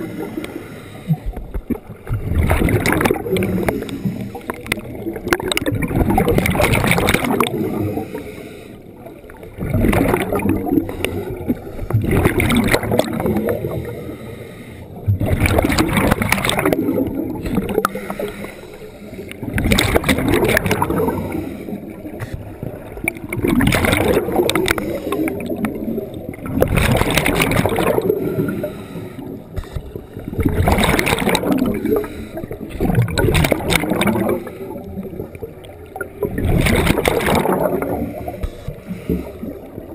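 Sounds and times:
diver breathing through regulator: 0:00.0 - 0:01.5, 0:03.4 - 0:04.7, 0:07.7 - 0:09.0, 0:13.6 - 0:15.1, 0:17.5 - 0:19.6, 0:21.0 - 0:22.4, 0:24.4 - 0:25.6, 0:28.0 - 0:30.2, 0:31.5 - 0:33.0, 0:38.1 - 0:39.7
bubbles rushing underwater: 0:00.0 - 0:08.2, 0:09.0 - 0:14.0, 0:15.0 - 0:18.4, 0:19.2 - 0:39.9.

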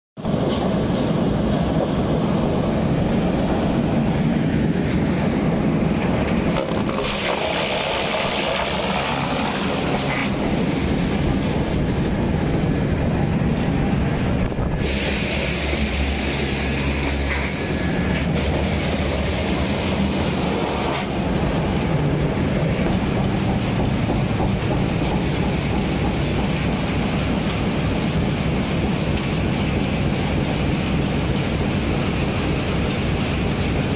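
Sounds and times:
wood chipper rumble: 0:06.2 - 0:33.4
wood chipper humming: 0:06.5 - 0:11.8.

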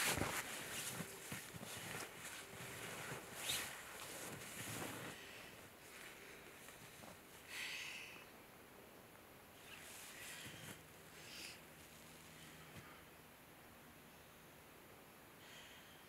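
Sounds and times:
clothing rustling against snow: 0:00.0 - 0:07.4.

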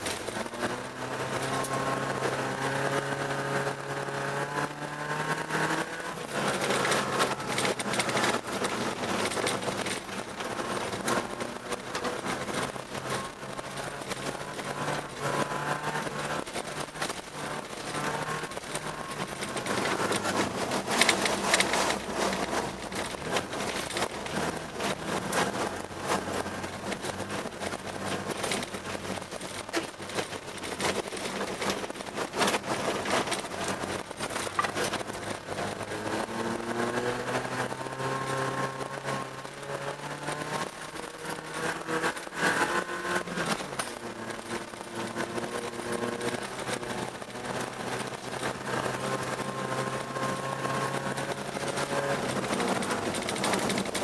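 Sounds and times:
car engine running: 0:00.0 - 0:54.0
knocks and clatters: 0:00.0 - 0:54.0
tyres on snow and ice: 0:00.0 - 0:54.0.

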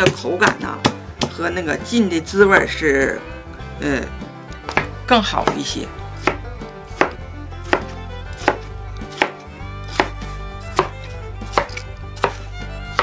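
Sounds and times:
knife chopping on cutting board: 0:00.0 - 0:01.4, 0:04.6 - 0:13.0.

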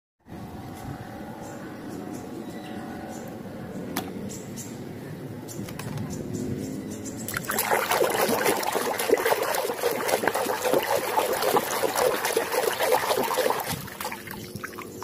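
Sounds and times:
hand swishing water in a tub: 0:07.3 - 0:15.0.

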